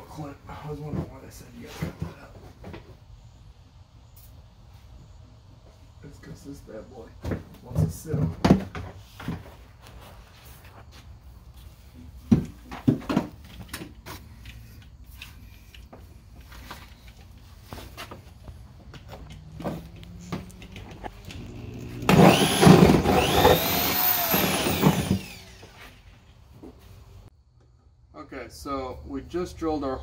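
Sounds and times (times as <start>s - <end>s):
parts knocking and clicking: 18.8s - 25.6s
power drill cutting: 20.5s - 26.0s.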